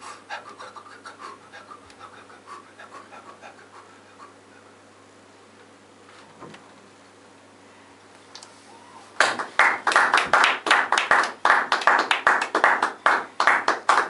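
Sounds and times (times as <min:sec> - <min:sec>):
hand clapping: 0:09.2 - 0:14.0.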